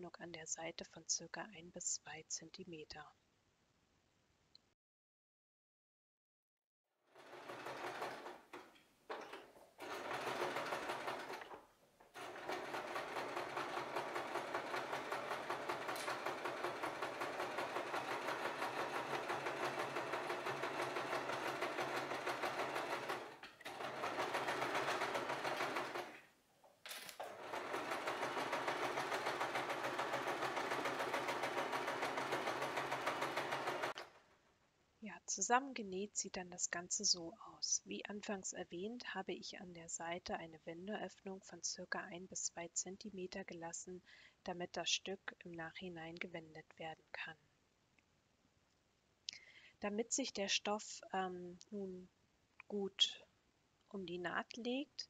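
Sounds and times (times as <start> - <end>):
sewing machine stitching: 7.1 - 26.3, 27.0 - 34.4.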